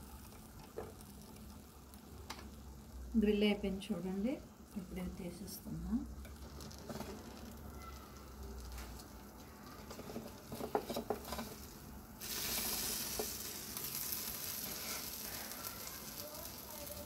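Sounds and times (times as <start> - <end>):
hot plate sizzling: 0.0 - 17.0
knife scraping a grill plate: 14.6 - 15.2.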